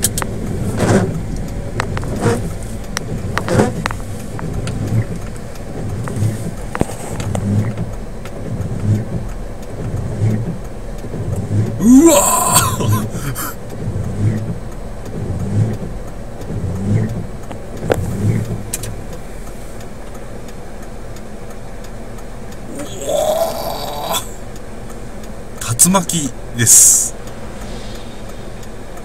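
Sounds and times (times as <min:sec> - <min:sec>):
car road noise: 0:00.0 - 0:29.0
loud rising rush: 0:27.1 - 0:29.0.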